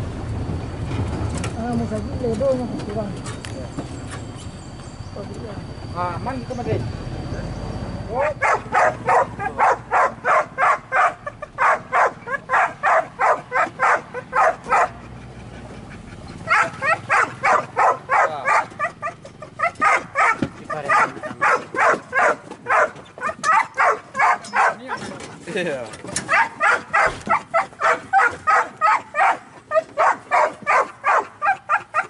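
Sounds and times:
dogs barking rapidly: 8.2 - 32.0.

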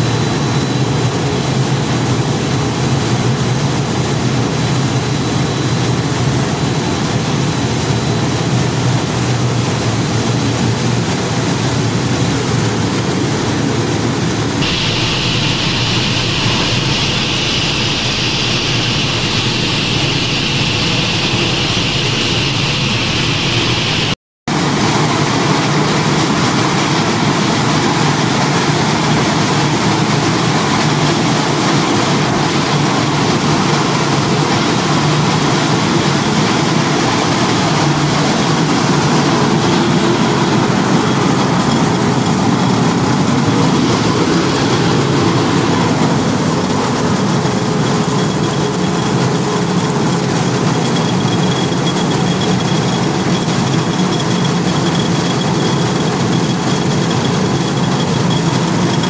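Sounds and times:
factory machinery humming: 0.0 - 59.0
roller mill rumbling: 14.6 - 59.0.

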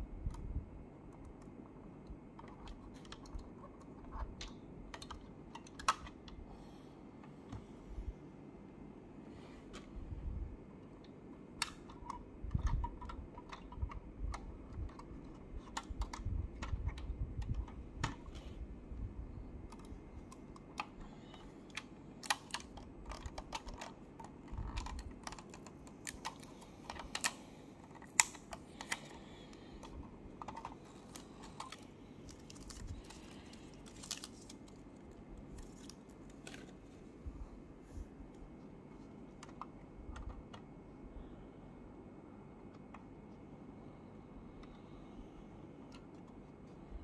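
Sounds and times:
packing tape peeling: 30.8 - 36.7.

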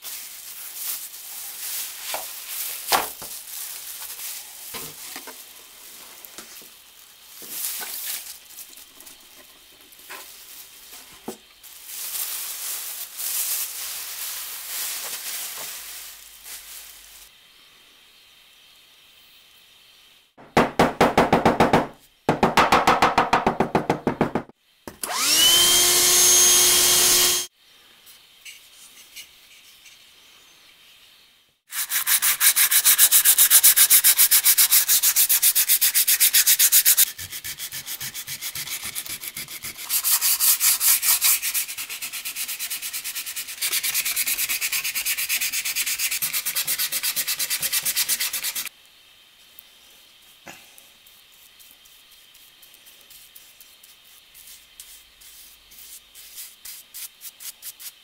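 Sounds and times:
sandpaper rubbing on wood: 31.7 - 48.7, 51.1 - 58.0.

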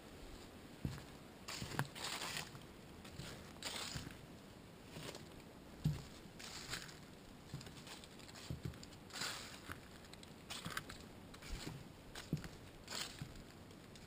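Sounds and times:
footsteps on wooden boards: 0.8 - 1.9, 5.8 - 8.8, 10.5 - 14.0
dry leaves scuffing underfoot: 0.8 - 4.2, 4.9 - 14.0.

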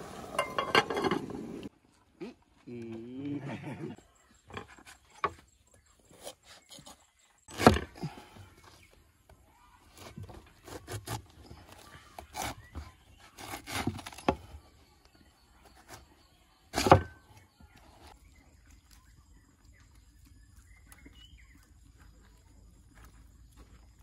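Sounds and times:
cleaver chopping on wooden table: 16.8 - 17.2.

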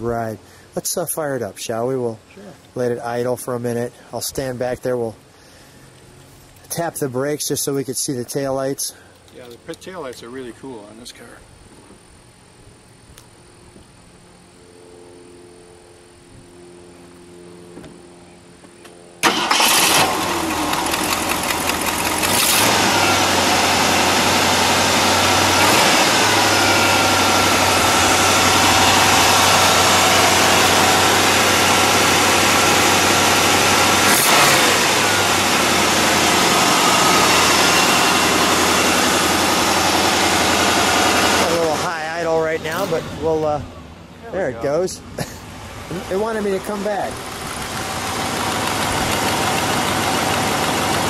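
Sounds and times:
car engine starting and idling: 19.2 - 51.0.

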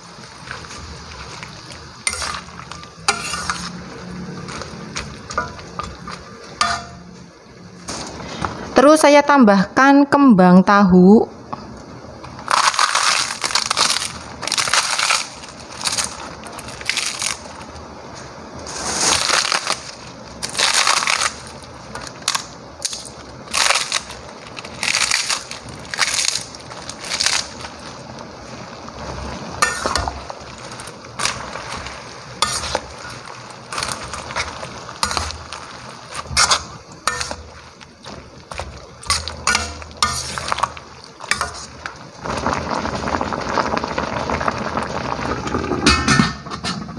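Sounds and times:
spatula stirring in metal wok: 0.0 - 7.2, 29.0 - 42.5
crisp sheets crushed and torn: 18.7 - 21.4, 22.1 - 27.8.

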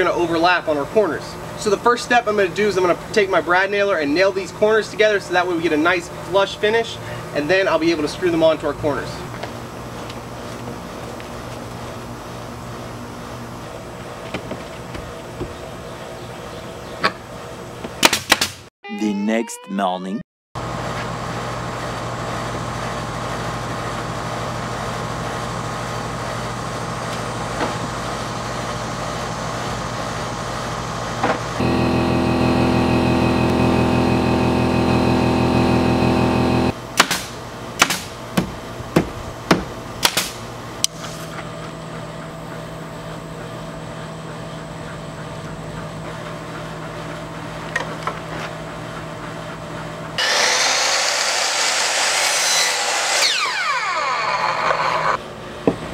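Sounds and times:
motor hum: 31.6 - 36.8, 50.2 - 55.2
power saw cutting wood: 31.6 - 36.8, 50.2 - 55.2.

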